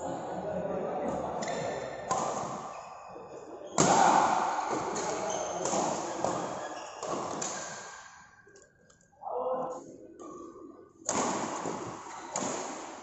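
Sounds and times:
rackets hitting shuttlecock: 0:01.4 - 0:02.8, 0:03.7 - 0:08.3, 0:11.1 - 0:13.0.

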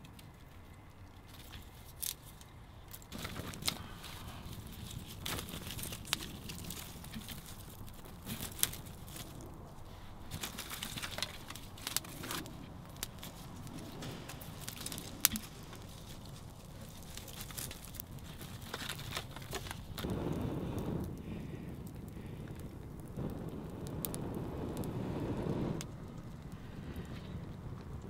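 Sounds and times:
twigs rustling: 0:00.0 - 0:20.1
twigs snapping: 0:00.0 - 0:20.1
campfire crackling and popping: 0:00.0 - 0:28.0.

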